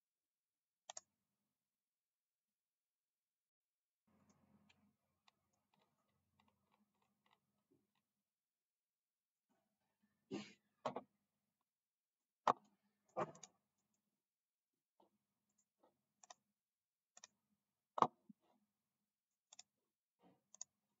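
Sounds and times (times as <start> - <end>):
computer mouse clicks: 0.9 - 1.1, 12.5 - 13.6, 15.6 - 16.4, 19.5 - 19.7, 20.5 - 20.7.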